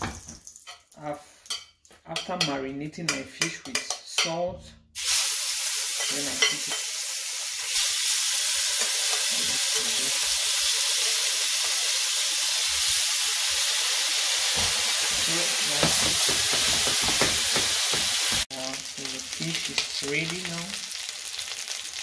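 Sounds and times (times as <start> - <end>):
fish sizzling in hot oil: 5.0 - 22.0.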